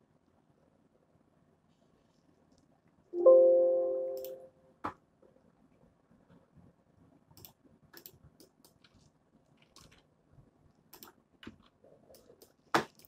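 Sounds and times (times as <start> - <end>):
keyboard keys clicking: 4.0 - 4.4.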